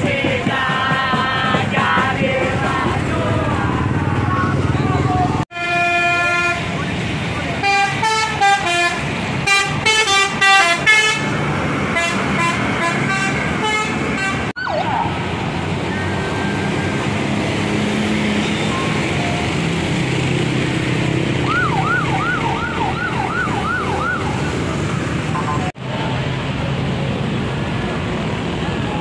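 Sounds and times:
bus engines and traffic: 0:00.0 - 0:29.0
vehicle horn honking: 0:05.5 - 0:06.8, 0:07.6 - 0:11.3, 0:12.0 - 0:14.4
siren yelping: 0:14.6 - 0:15.2, 0:21.4 - 0:24.7.

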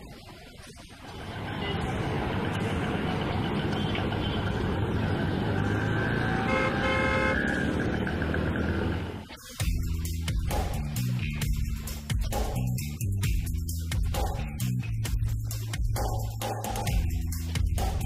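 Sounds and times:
traffic rumble: 0:00.0 - 0:10.6
car horn honking: 0:06.3 - 0:07.7.

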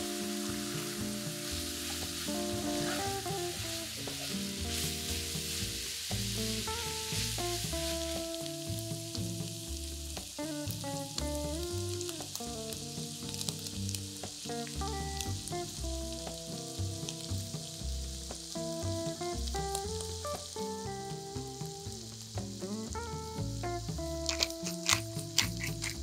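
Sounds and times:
background music with bass line: 0:00.0 - 0:26.0
meat sizzling in a frying pan: 0:00.0 - 0:26.0
utensil clicking against pan: 0:24.1 - 0:26.0.

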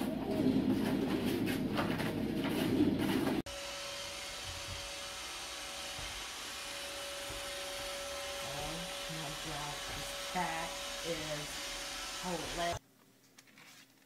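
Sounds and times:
robot vacuum cleaner whining: 0:03.5 - 0:12.8.

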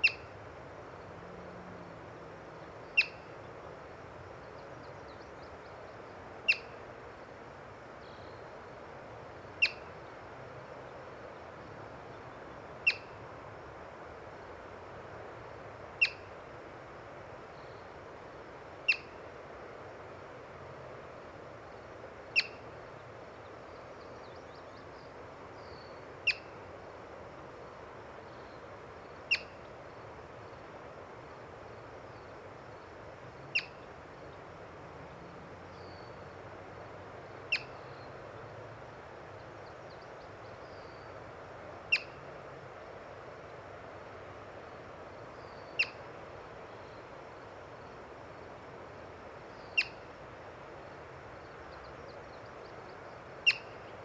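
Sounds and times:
marmot alarm chirps: 0:03.0 - 0:03.2, 0:22.4 - 0:22.6, 0:33.5 - 0:33.8, 0:37.5 - 0:37.7, 0:41.9 - 0:42.2, 0:45.7 - 0:46.0, 0:49.7 - 0:50.0, 0:53.4 - 0:53.8.

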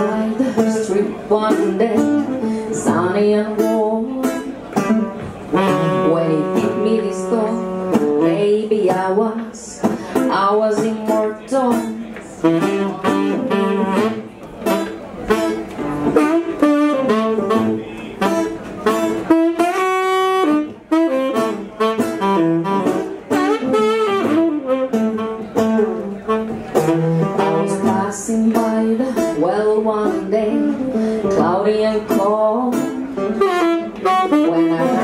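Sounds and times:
plucked guitar: 0:00.0 - 0:35.0
saxophone melody: 0:03.6 - 0:08.9, 0:11.7 - 0:29.4, 0:32.1 - 0:35.0.

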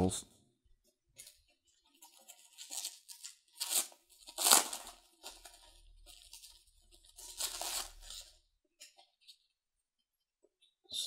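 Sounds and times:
plastic shrink-wrap tearing: 0:01.2 - 0:08.4.

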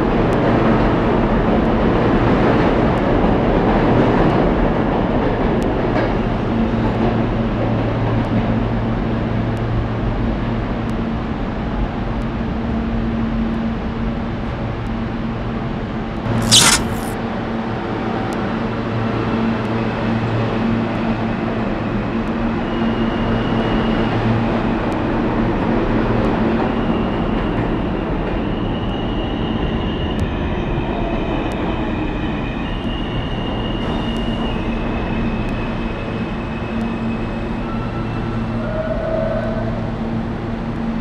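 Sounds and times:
subway train rumbling on rails: 0:26.8 - 0:40.8
high thin train whines: 0:32.4 - 0:40.1.

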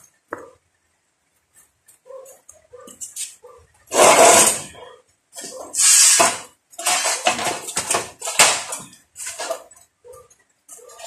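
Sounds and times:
steel bar clanking on concrete: 0:03.9 - 0:04.8, 0:05.4 - 0:09.9.

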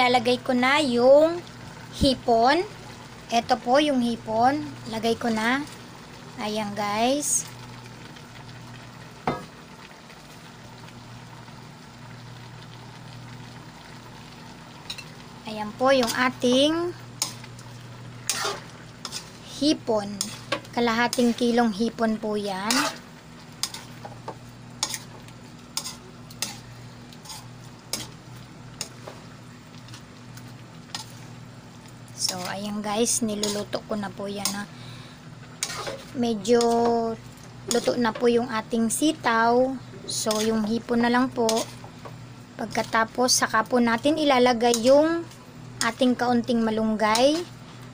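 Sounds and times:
food sizzling in a wok: 0:00.0 - 0:47.9
steady low hum: 0:00.0 - 0:47.9
metal spatula scraping wok: 0:18.2 - 0:21.6, 0:22.6 - 0:23.9, 0:24.8 - 0:28.2, 0:33.2 - 0:33.8, 0:35.6 - 0:37.0, 0:37.7 - 0:38.2, 0:40.0 - 0:41.9.

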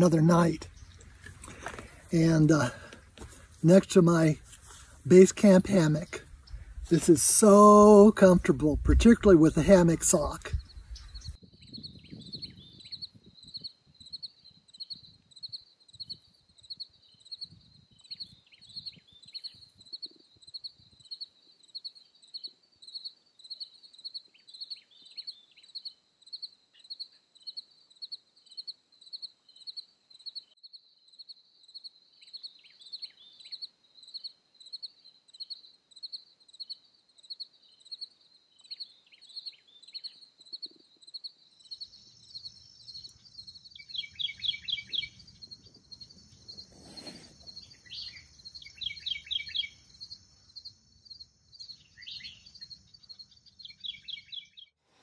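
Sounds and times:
insect chirping: 0:00.0 - 0:54.7.

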